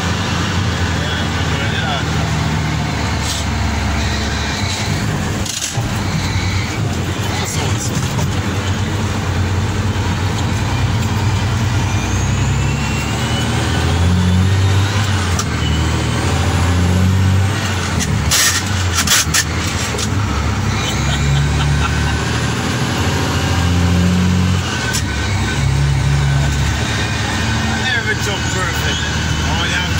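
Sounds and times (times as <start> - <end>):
diesel truck engine under load: 0.0 - 29.9
high rising whistle: 10.6 - 14.9.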